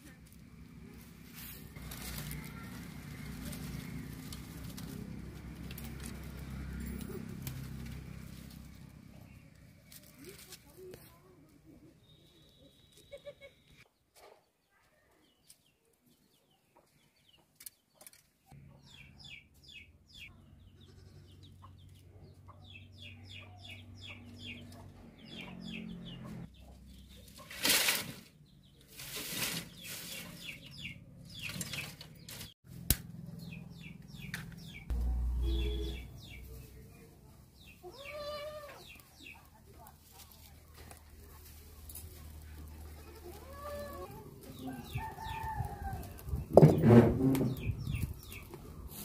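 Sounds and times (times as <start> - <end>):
dry branches and leaves crackling: 0.0 - 13.4, 26.8 - 46.6
birds chirping: 33.2 - 39.9.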